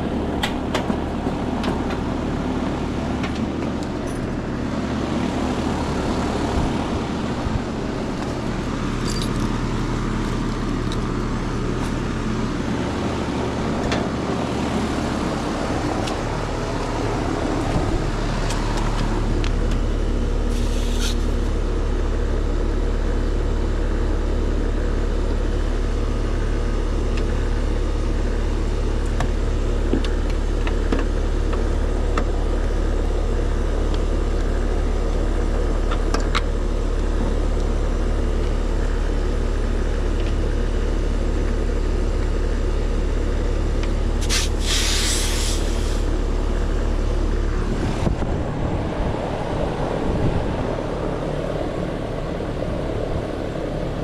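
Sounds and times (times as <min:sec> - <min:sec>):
condenser low hum: 0:00.0 - 0:54.0
brief hisses: 0:20.5 - 0:21.4, 0:44.2 - 0:46.1.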